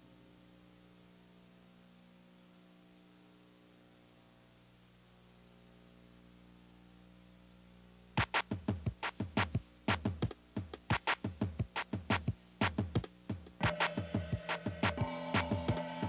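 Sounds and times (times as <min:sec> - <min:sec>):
synth drone of held tones: 0:13.6 - 0:16.0
synthesized percussive hits: 0:13.6 - 0:16.0.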